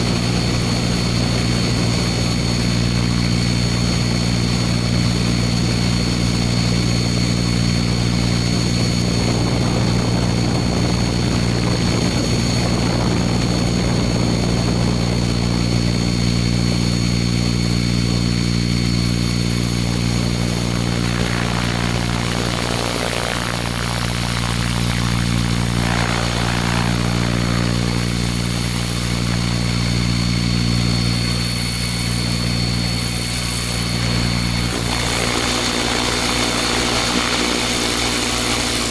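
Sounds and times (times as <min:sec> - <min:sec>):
helicopter rotor drone: 0:00.0 - 0:38.9
high whine: 0:00.0 - 0:38.9
rush of air: 0:19.2 - 0:38.9.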